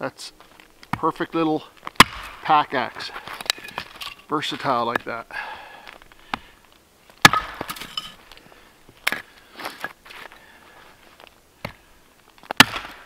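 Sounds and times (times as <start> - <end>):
axe striking wood: 2.0 - 2.5, 7.2 - 8.0, 12.6 - 13.0.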